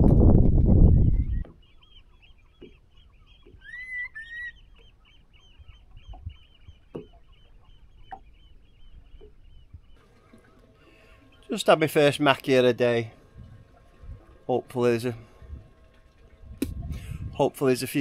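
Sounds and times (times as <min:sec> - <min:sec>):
louder rising bird calls: 0:01.2 - 0:10.0
birds calling short high notes: 0:03.1 - 0:10.0.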